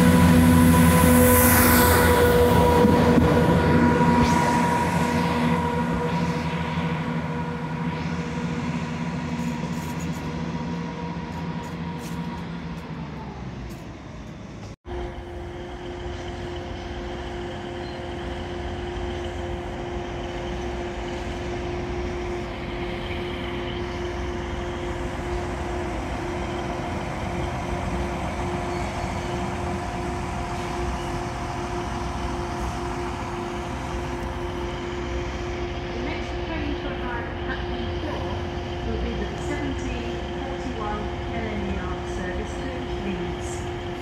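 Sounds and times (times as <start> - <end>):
high-pitched hum: 0.0 - 13.6
train wagons rumbling past: 0.0 - 44.0.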